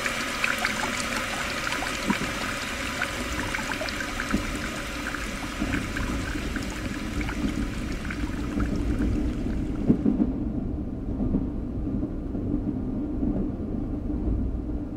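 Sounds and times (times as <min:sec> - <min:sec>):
bathwater trickling: 0:00.0 - 0:09.9.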